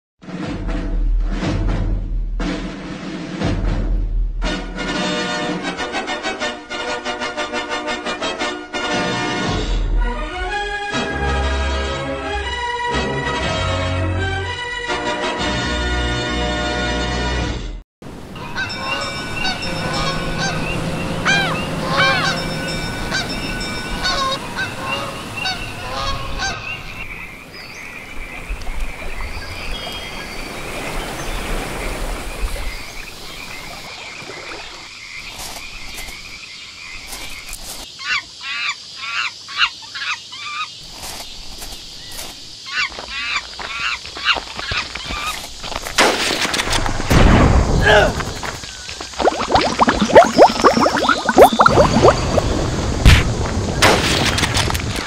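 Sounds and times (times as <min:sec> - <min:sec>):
animal calls: 0:18.4 - 0:27.0.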